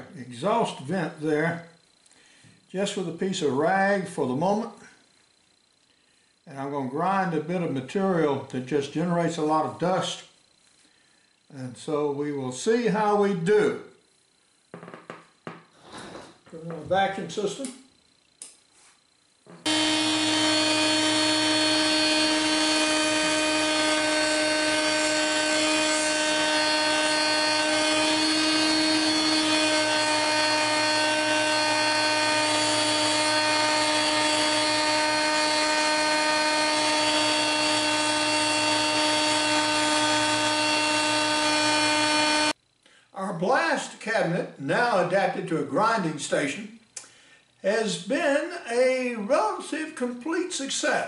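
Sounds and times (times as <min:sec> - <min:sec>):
shop vacuum running: 0:18.7 - 0:42.6
electric grinder whining: 0:19.5 - 0:42.6.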